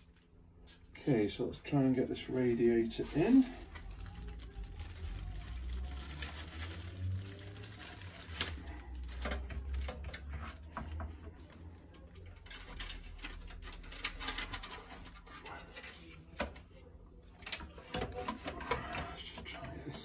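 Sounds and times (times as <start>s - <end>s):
plastic wrapping rustling: 2.2s - 11.6s, 12.3s - 16.4s.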